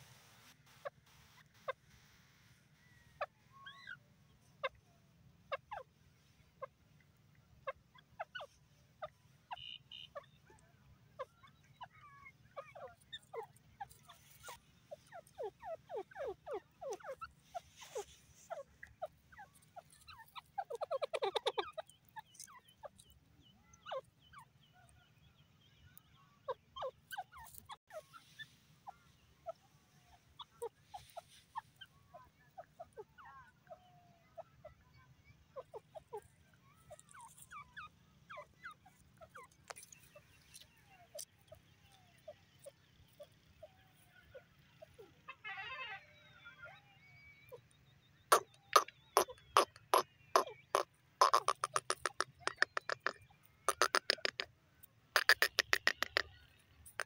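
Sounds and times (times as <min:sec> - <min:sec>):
bird clucking calls: 0:07.6 - 0:10.6, 0:11.2 - 0:24.5, 0:26.5 - 0:45.4, 0:48.3 - 0:54.5, 0:55.1 - 0:57.0.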